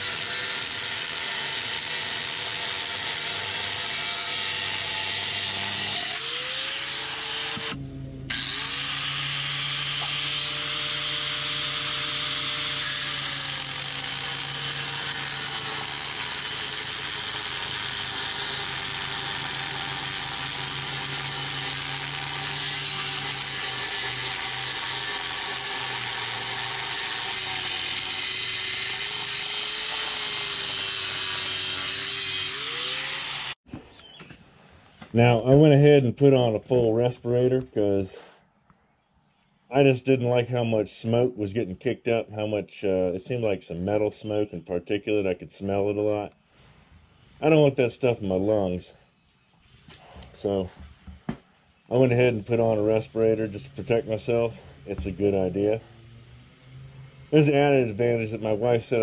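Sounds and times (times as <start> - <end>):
angle grinder cutting steel rod: 0.0 - 33.6, 51.9 - 59.0.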